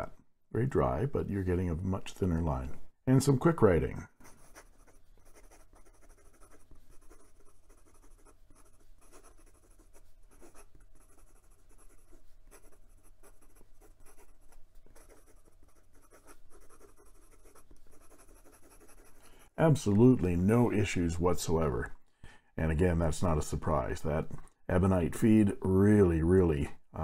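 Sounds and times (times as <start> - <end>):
fountain pen scratching on paper: 4.1 - 19.5.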